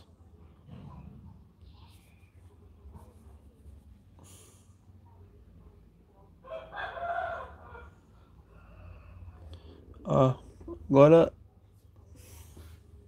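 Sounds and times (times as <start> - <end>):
low room noise: 0.0 - 13.0.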